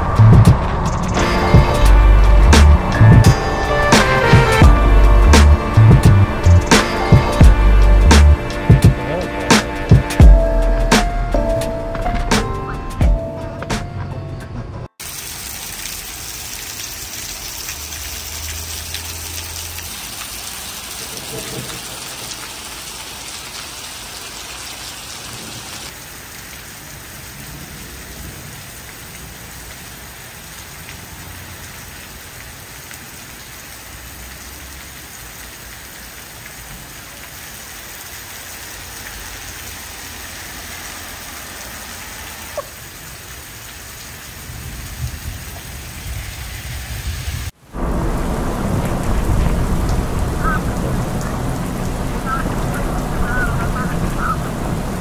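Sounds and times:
heavy rain on wet pavement: 0:00.0 - 0:12.3, 0:15.0 - 0:55.0.

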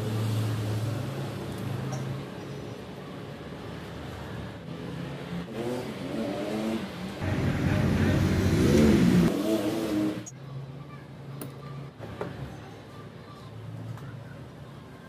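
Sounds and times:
engine revving: 0:05.3 - 0:10.3.

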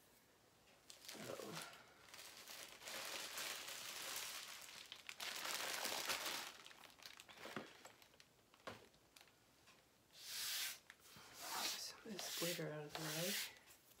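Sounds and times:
plastic mailer bags crinkling: 0:00.9 - 0:09.4.

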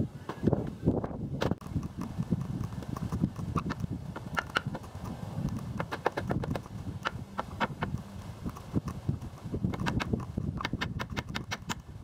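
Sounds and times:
hollow knocks and scrapes on roof: 0:08.6 - 0:11.8.

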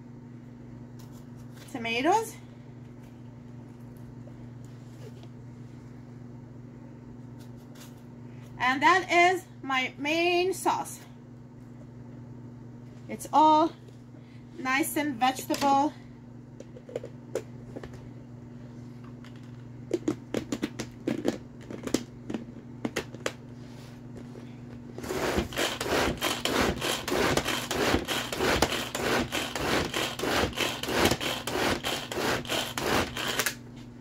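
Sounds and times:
pull-cord chopper blades whirring: 0:25.0 - 0:33.6.

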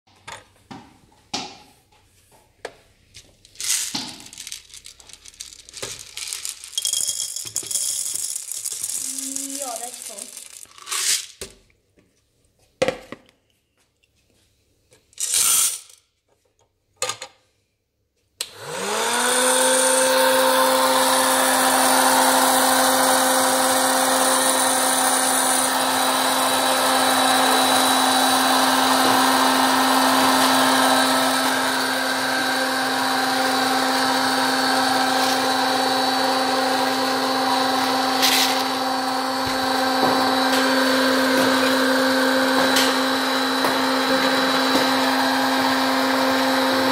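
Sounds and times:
handling sounds: 0:03.1 - 0:11.3
popcorn maker fan humming: 0:18.4 - 0:46.9.

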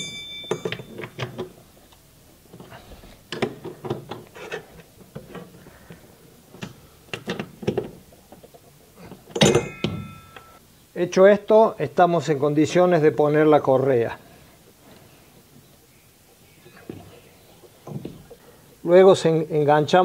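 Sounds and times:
ringing metal clink: 0:00.0 - 0:01.2, 0:09.4 - 0:10.6.

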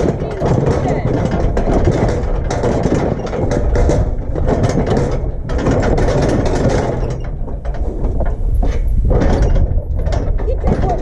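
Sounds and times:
low rumble: 0:00.0 - 0:11.0
metal chute rattling and clanking: 0:00.0 - 0:11.0.

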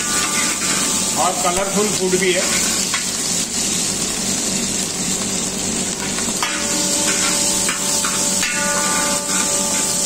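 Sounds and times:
metal spoon stirring in pan: 0:00.0 - 0:01.1, 0:06.0 - 0:10.0
vegetables sizzling in oil: 0:00.0 - 0:10.0
steady ringing tone: 0:06.4 - 0:10.0.

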